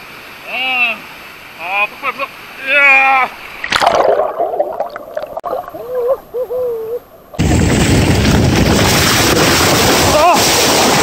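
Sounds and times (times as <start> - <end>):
gurgling water: 3.5 - 7.4
water splashing under bike tyre: 7.5 - 11.0.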